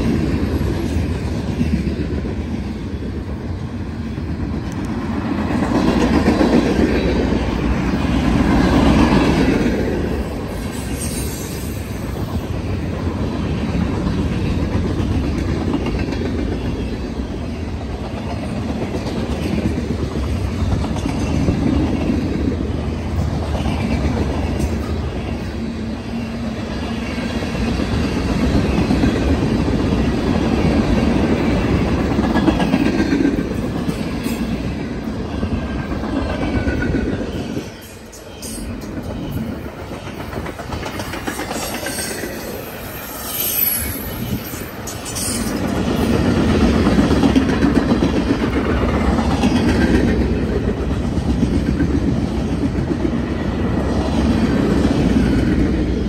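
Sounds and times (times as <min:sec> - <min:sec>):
freight train wheels rumbling on rails: 0:00.0 - 0:56.0
faint high wheel squeals: 0:41.8 - 0:45.6.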